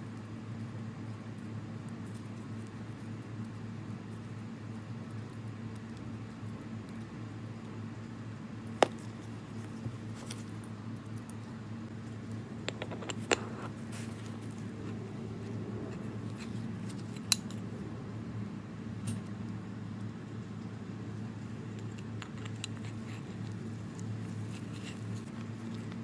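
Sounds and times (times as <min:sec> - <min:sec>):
steady low hum: 0:00.0 - 0:26.0
small metal clicks and taps: 0:21.8 - 0:24.1.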